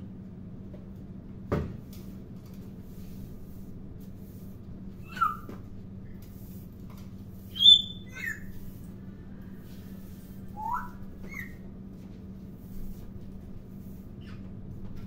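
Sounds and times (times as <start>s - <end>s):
steady low hum: 0.0s - 15.0s
parrot whistles and chirps: 5.0s - 5.6s, 7.5s - 8.6s, 10.5s - 11.6s.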